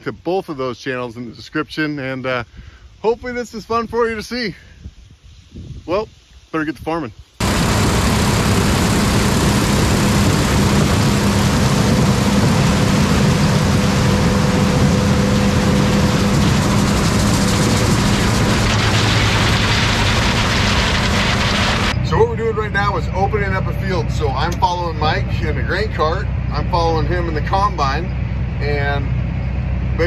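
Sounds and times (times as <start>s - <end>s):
threshing machinery rushing: 7.4s - 22.0s
combine harvester engine hum: 7.4s - 30.0s.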